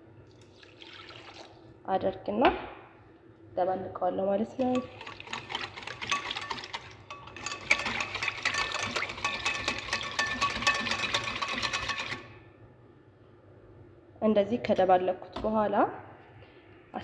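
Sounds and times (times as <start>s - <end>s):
whisk clicking against glass bowl: 4.6s - 12.3s.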